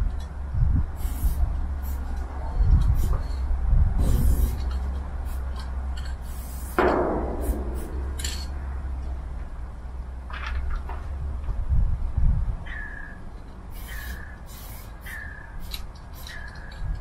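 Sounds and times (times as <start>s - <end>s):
steady low rumble: 0.0s - 17.0s
spray-paint cans hissing: 1.0s - 3.4s, 4.0s - 6.8s, 13.7s - 16.8s
sudden ringing knock: 6.8s - 8.8s.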